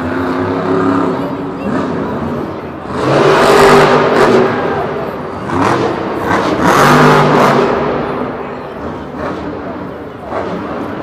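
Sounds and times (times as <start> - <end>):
truck engine revving hard: 0.0 - 11.0.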